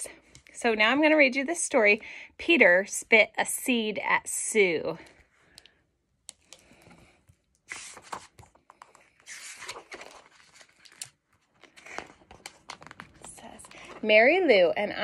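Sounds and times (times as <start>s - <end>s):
book pages rustling: 6.6s - 14.0s.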